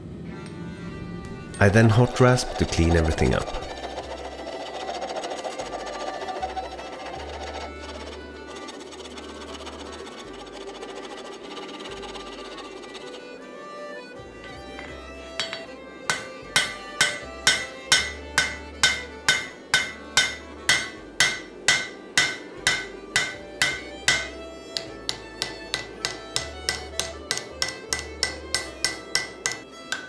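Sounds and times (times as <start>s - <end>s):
hammer striking hot metal on anvil: 14.4s - 30.0s.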